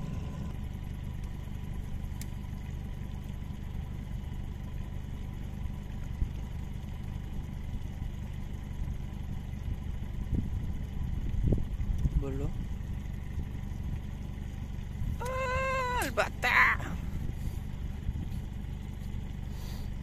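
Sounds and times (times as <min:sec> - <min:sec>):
boat motor running: 0:00.0 - 0:20.0.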